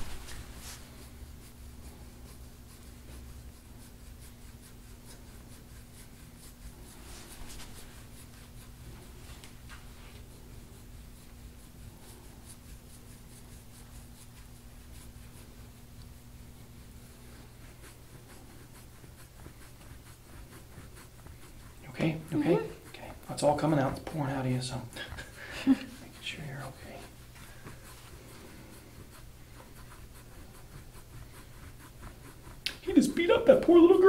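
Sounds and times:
scraping tool rasping on skin: 17.1 - 33.8.

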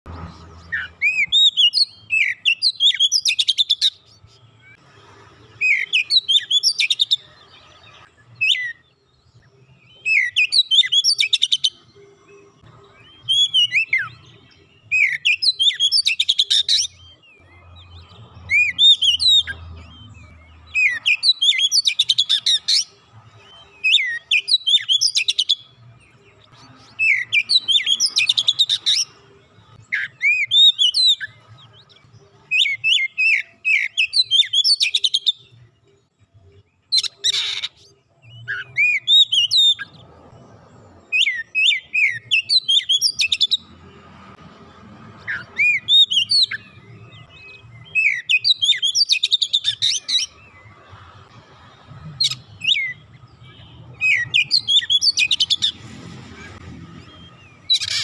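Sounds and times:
bird singing whistled phrases: 0.7 - 4.8, 9.6 - 11.8, 13.0 - 14.2, 14.8 - 17.2, 20.7 - 22.8, 23.5 - 25.7, 29.9 - 31.4, 45.3 - 50.3, 52.2 - 55.7.

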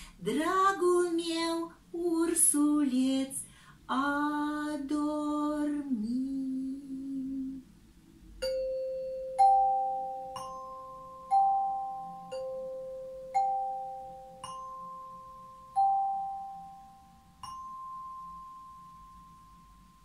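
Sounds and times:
woman singing: 0.2 - 7.7
resonator bells ringing: 8.4 - 20.0.

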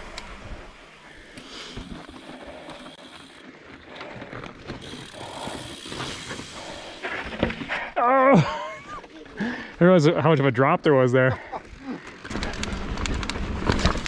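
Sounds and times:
bike freehub ticking: 1.3 - 7.1.

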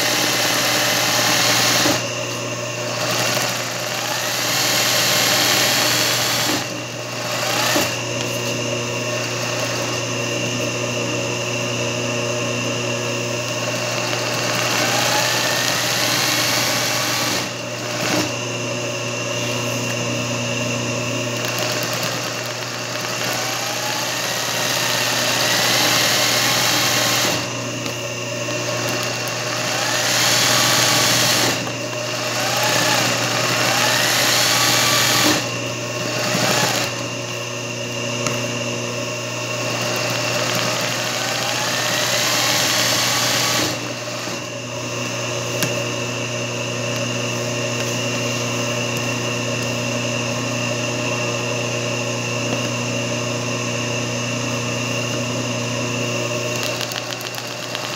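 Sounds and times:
sewing machine stitching: 0.0 - 2.1, 2.8 - 8.4, 9.1 - 10.0, 13.6 - 18.4, 21.4 - 27.5, 28.6 - 37.0, 39.7 - 44.4, 56.5 - 57.9
motor hum: 0.0 - 57.9.

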